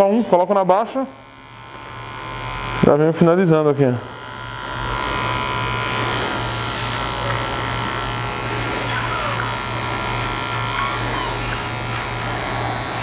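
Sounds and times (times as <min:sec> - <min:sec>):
electric hair clipper buzzing: 0:00.8 - 0:13.0.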